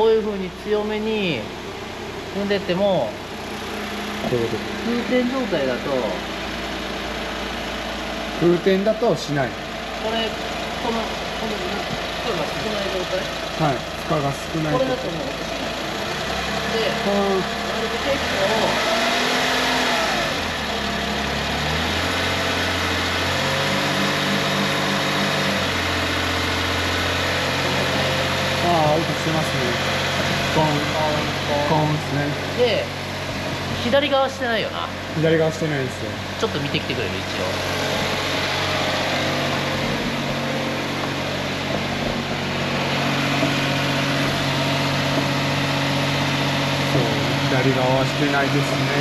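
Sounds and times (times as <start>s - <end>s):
car engine running: 0.0s - 49.0s
rhythmic knocking from wheel hub: 22.4s - 49.0s.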